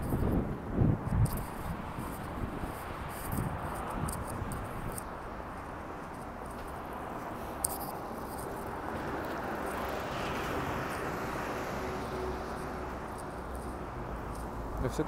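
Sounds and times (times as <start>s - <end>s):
traffic hum: 0.0s - 15.0s
vehicle passing: 1.3s - 15.0s.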